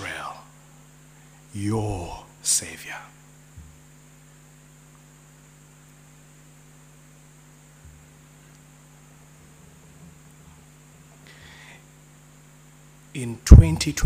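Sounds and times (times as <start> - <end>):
faint high hiss: 0.0 - 14.0
low electrical hum: 0.0 - 14.0
soft low thumps: 3.5 - 3.9, 7.8 - 8.2.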